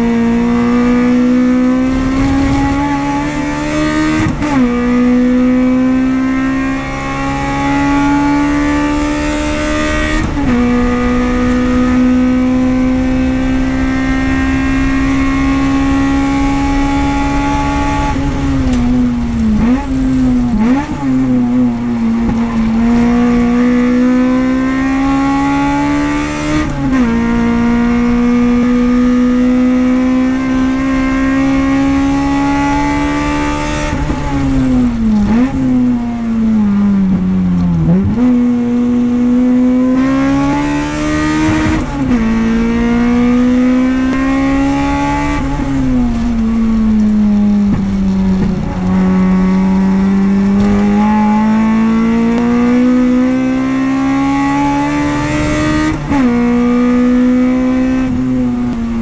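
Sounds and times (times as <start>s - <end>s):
race car engine accelerating: 0.0s - 59.0s
throttle blips on downshifts: 6.7s - 59.0s.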